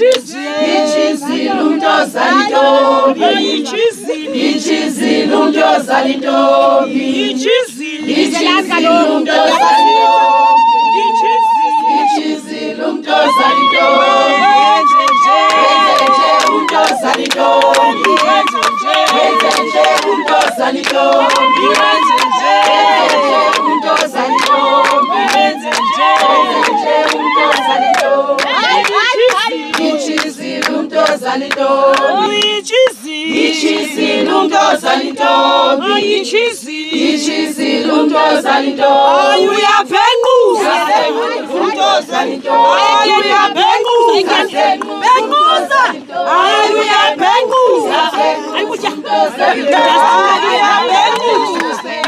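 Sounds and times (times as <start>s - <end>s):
hands clapping: 0.0s - 0.3s, 14.6s - 34.0s, 44.7s - 45.2s, 50.6s - 52.0s
women singing together: 0.0s - 52.0s.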